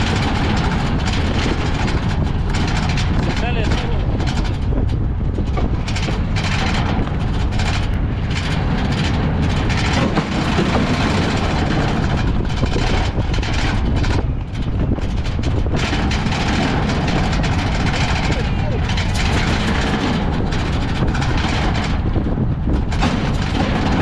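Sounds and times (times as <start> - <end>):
wind on microphone: 0.0 - 24.0
wooden carts rolling on street: 0.0 - 24.0.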